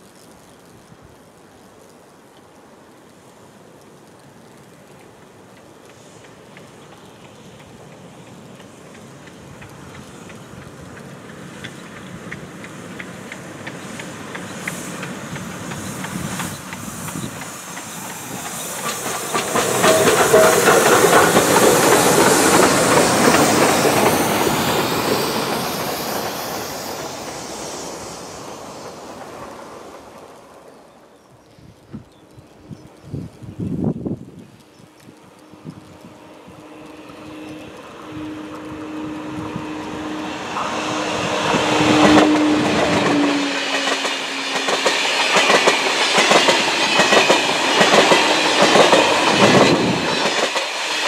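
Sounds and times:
steam hiss: 0.0s - 31.8s, 34.6s - 51.0s
wheels clattering over rail joints: 5.9s - 26.5s.

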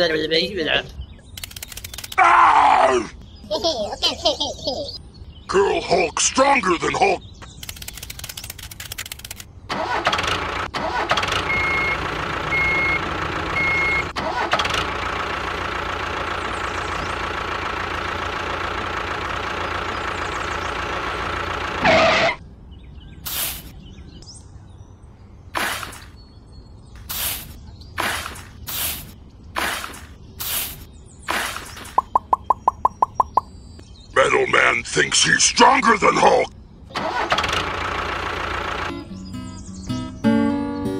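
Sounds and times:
tractor engine running: 1.3s - 2.2s, 7.5s - 22.4s, 31.4s - 33.5s, 36.9s - 39.8s.

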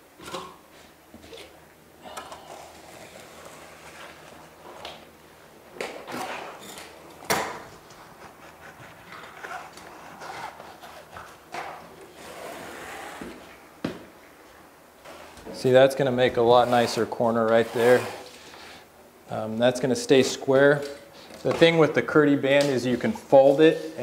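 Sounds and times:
trowel scraping mortar: 16.5s - 18.3s.

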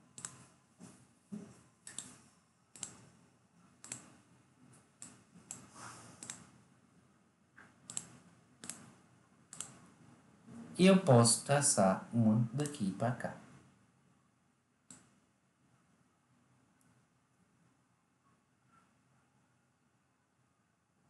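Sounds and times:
computer mouse clicking: 0.1s - 0.5s, 1.8s - 3.2s, 3.8s - 6.6s, 7.6s - 9.9s, 14.9s - 15.2s.

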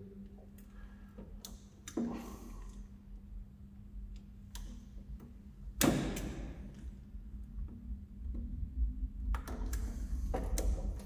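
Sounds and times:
steady low hum: 0.0s - 11.0s
cable clicks and knocks: 4.1s - 11.0s.

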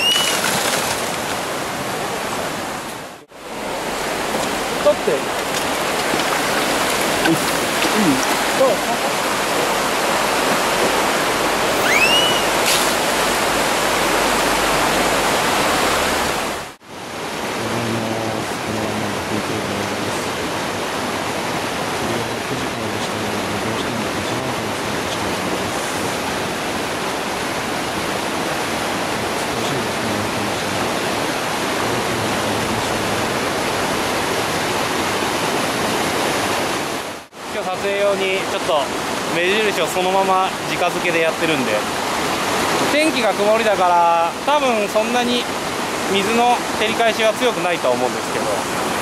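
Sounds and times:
short rising chirp: 0.0s - 0.4s, 11.7s - 12.8s
water rushing over rocks: 0.0s - 49.0s.

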